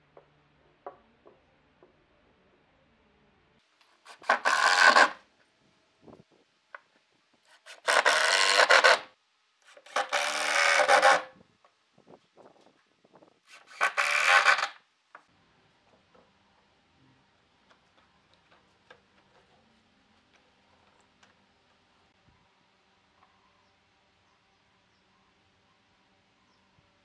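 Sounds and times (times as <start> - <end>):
drill driving screws into wood: 4.1 - 5.2, 7.5 - 9.1, 9.7 - 11.3, 13.5 - 14.8.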